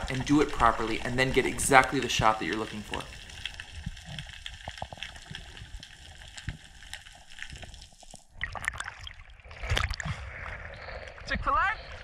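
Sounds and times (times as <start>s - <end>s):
underwater hiss with crackling: 0.0s - 8.3s
water sloshing and splashing: 0.0s - 11.6s.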